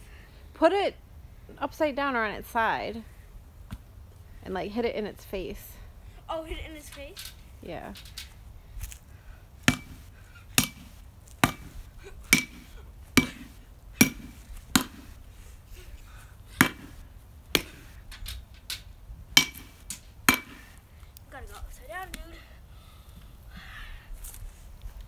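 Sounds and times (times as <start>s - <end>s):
bat whacking pumpkin: 9.6s - 15.2s, 16.6s - 17.0s, 17.6s - 17.9s.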